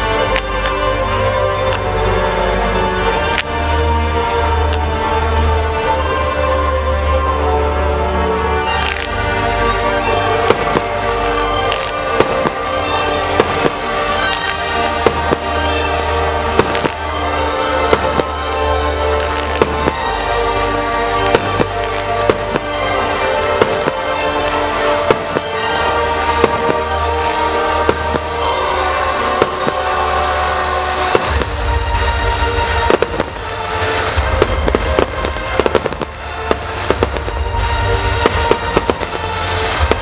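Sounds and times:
music: 0:00.0 - 0:40.0
fireworks bangs: 0:08.7 - 0:09.2, 0:10.3 - 0:40.0.

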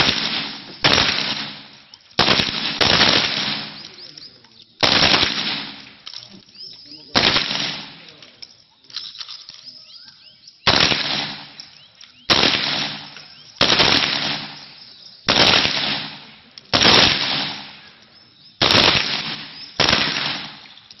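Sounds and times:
gunshot echo: 0:00.0 - 0:04.1, 0:04.8 - 0:06.1, 0:07.1 - 0:08.2, 0:10.7 - 0:11.6, 0:12.3 - 0:18.0, 0:18.6 - 0:20.8.

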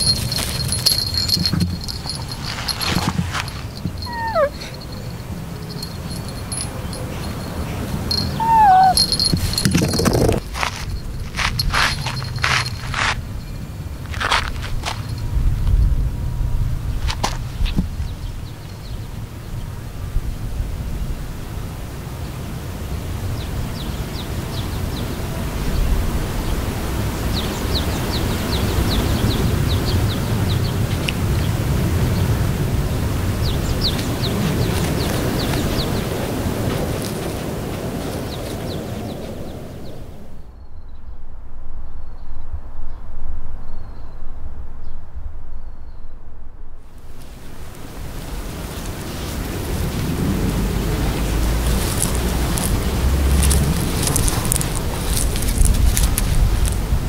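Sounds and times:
small bell jingling: 0:00.0 - 0:13.7, 0:14.6 - 0:15.5, 0:51.6 - 0:56.8
rustling on dry grass: 0:00.0 - 0:15.2, 0:32.6 - 0:40.2, 0:46.9 - 0:57.0
wind buffeting microphone: 0:00.0 - 0:21.8, 0:22.8 - 0:57.0
small bird chirping: 0:03.6 - 0:10.3
kitten mewing: 0:04.0 - 0:04.8, 0:08.2 - 0:09.2.

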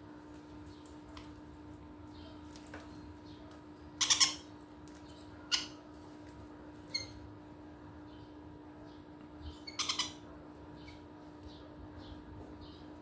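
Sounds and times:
parrots squawking: 0:04.0 - 0:04.5, 0:05.5 - 0:05.8, 0:09.6 - 0:10.3.

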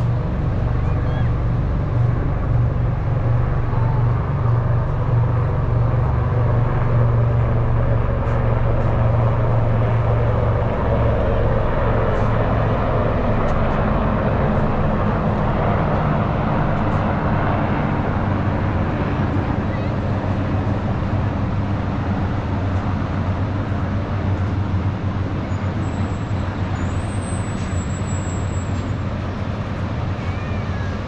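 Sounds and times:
low droning rumble: 0:00.0 - 0:25.8.

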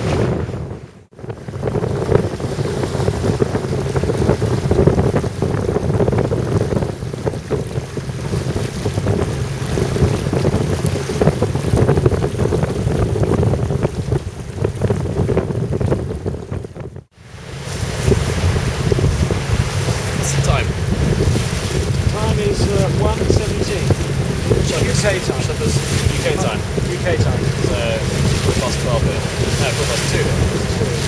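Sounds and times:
water rushing along hull: 0:00.0 - 0:31.0
wind buffeting microphone: 0:00.0 - 0:31.0.

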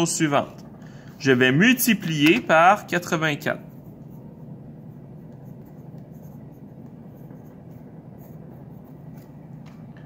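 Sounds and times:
low background hum: 0:00.0 - 0:10.0
pen scratching on paper: 0:03.6 - 0:09.6.

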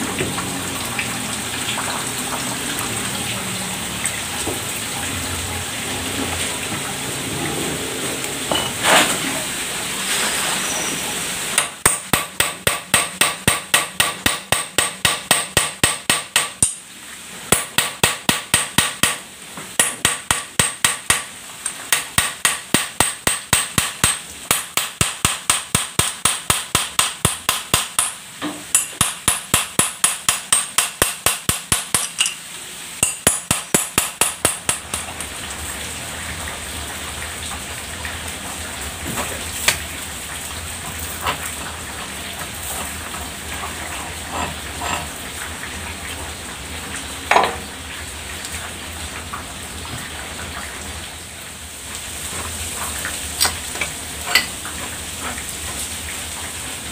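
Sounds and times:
hammer beating on metal: 0:11.6 - 0:16.8, 0:17.5 - 0:19.2, 0:19.8 - 0:21.3, 0:21.9 - 0:32.4, 0:33.0 - 0:35.1.

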